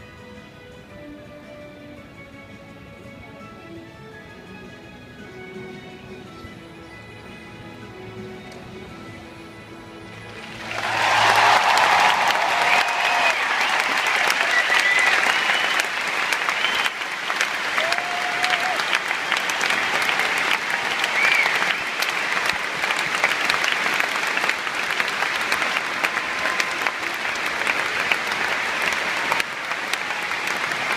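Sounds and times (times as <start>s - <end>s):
stadium crowd applauding: 10.3s - 30.9s.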